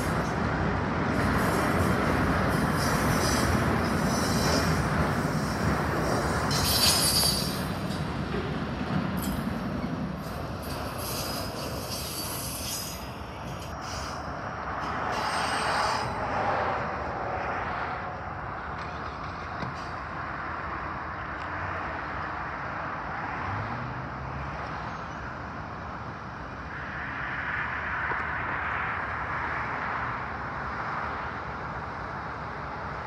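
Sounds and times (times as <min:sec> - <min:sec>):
train wheels rumbling on track: 0:00.0 - 0:23.6
high wheel squeal: 0:02.5 - 0:08.0, 0:10.2 - 0:16.4.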